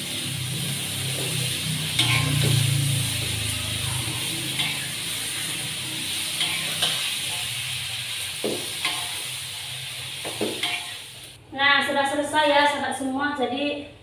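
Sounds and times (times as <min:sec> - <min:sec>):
vegetables sizzling in a wok: 0:00.0 - 0:11.4
spatula scraping a pan: 0:01.0 - 0:07.6.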